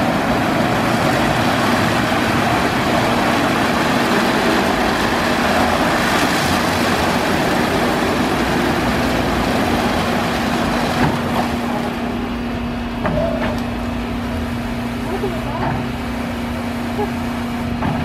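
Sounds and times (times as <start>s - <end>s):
car wash brush spinning and scrubbing: 0.0s - 12.0s
motor hum: 0.0s - 17.8s.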